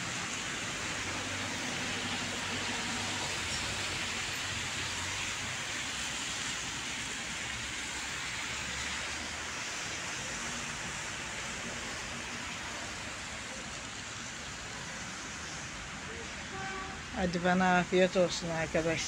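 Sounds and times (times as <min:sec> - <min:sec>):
low traffic hum on wet road: 0:00.0 - 0:19.0
steady rain falling: 0:00.0 - 0:19.0.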